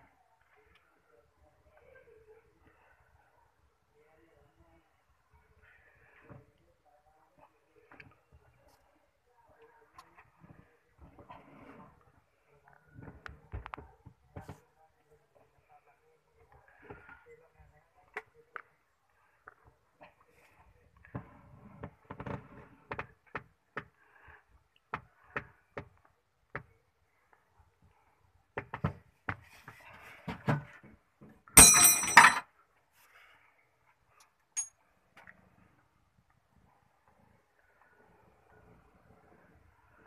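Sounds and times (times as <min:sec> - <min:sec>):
ringing metallic clatter: 0:31.6 - 0:32.4.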